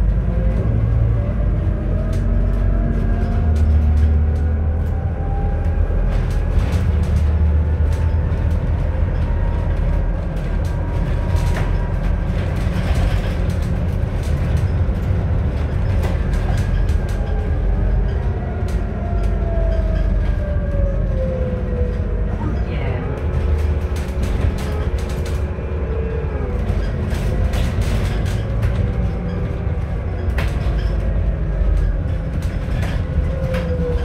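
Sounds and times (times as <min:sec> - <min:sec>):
bus body rattling: 0:00.0 - 0:34.0
bus drivetrain and road rumble: 0:00.0 - 0:34.0
bus engine whine: 0:00.0 - 0:34.0.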